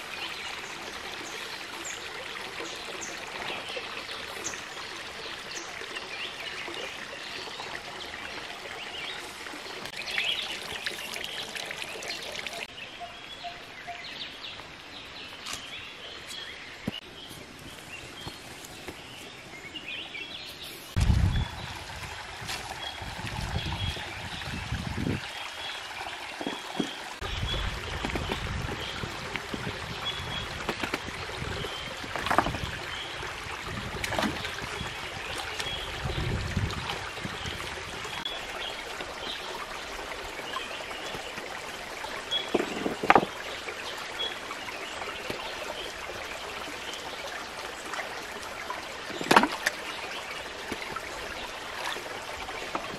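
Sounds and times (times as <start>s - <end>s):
stream trickling: 0.0s - 52.9s
hands splashing and knocking stones: 32.0s - 32.7s, 42.5s - 43.4s, 49.1s - 49.8s.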